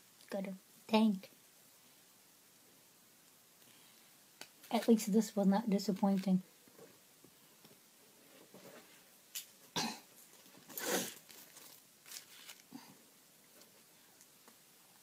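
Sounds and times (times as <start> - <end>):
woman coughing: 9.8 - 10.1.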